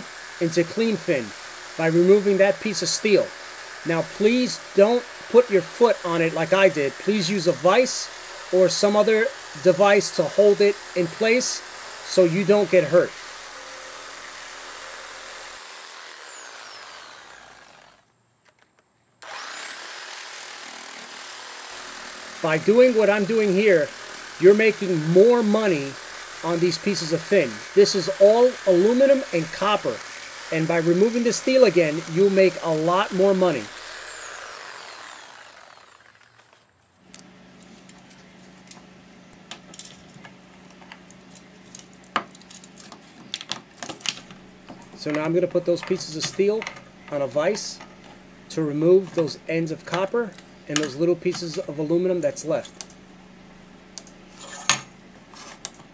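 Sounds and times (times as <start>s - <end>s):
power tool whining: 0.0s - 38.7s.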